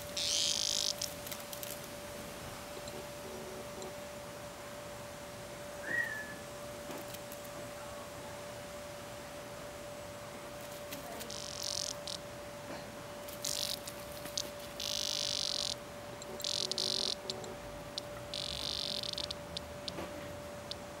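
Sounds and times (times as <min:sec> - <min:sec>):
cicada buzzing: 0:00.0 - 0:04.3, 0:10.6 - 0:12.4, 0:13.2 - 0:21.0.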